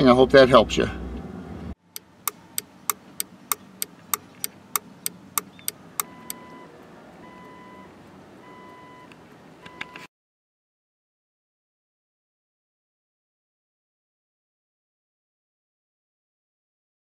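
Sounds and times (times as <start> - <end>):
turn signal flasher clicking: 1.8 - 10.1
repeating beeping tone: 5.4 - 6.6.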